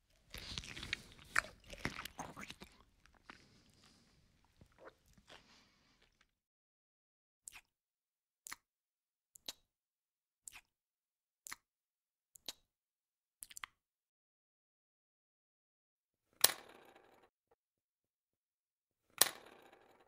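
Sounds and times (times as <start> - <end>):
lips smacking: 0.1 - 6.2.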